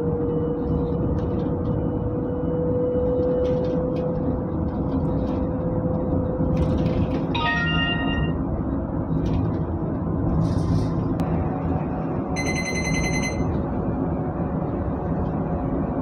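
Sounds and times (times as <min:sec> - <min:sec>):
bus engine and road noise: 0:00.0 - 0:16.0
high electronic chime: 0:07.4 - 0:08.4.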